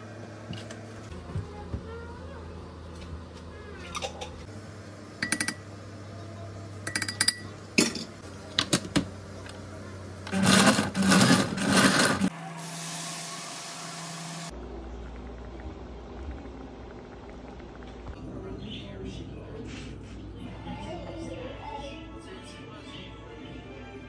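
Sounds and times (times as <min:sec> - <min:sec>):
countertop blender running: 0:10.2 - 0:14.6.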